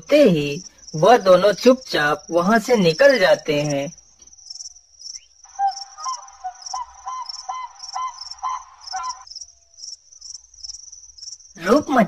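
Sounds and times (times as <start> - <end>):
crickets chirping: 0.0 - 12.0
short repeated animal calls: 5.5 - 9.3.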